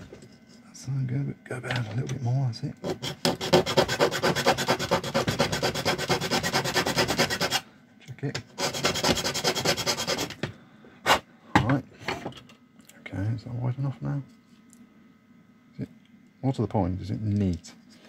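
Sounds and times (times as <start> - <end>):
metal file rasping on plastic: 2.8 - 7.6, 8.6 - 10.4.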